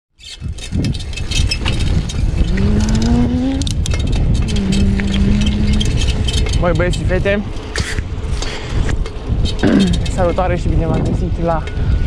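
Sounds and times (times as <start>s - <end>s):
bicycle rattling and clicking: 0.1s - 12.0s
wind rumbling over microphone: 0.2s - 12.0s
humming tone: 2.4s - 6.3s.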